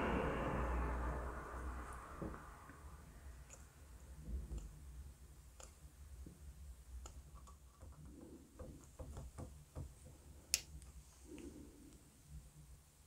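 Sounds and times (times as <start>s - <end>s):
faint clicks and taps: 3.4s - 4.8s, 5.5s - 12.0s.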